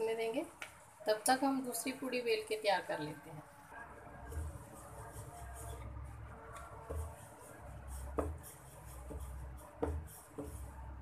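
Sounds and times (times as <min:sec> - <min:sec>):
rolling pin rubbing dough: 0:03.6 - 0:11.0
rolling pin knocking on board: 0:08.1 - 0:08.4, 0:09.0 - 0:10.6.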